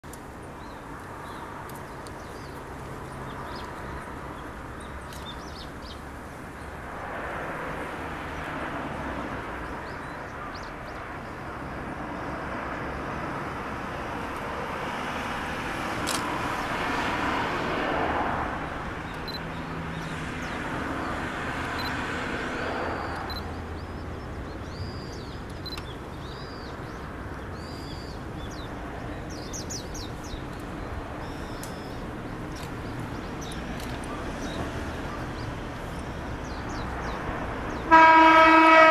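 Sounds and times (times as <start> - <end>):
road traffic passing: 0.0 - 38.9
small birds chirping: 0.4 - 6.8, 9.6 - 11.4, 19.0 - 22.1, 23.0 - 37.9.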